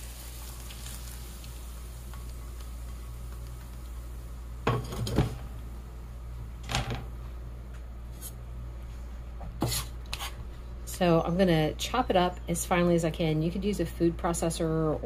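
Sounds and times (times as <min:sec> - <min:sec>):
steady low hum: 0:00.0 - 0:15.0
pan knocking on stove top: 0:04.6 - 0:05.4
frying pan and spatula clattering: 0:04.7 - 0:05.5.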